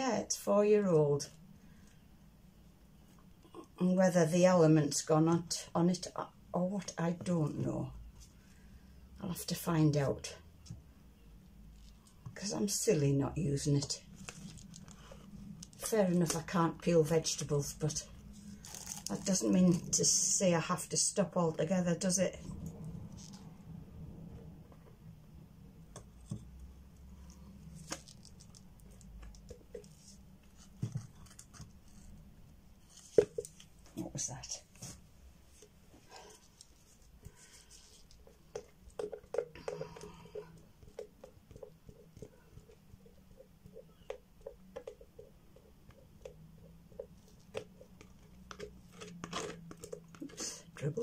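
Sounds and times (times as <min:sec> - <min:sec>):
low steady hum: 0:00.0 - 0:51.0
plastic stick scraping jug: 0:13.8 - 0:20.3, 0:36.5 - 0:51.0.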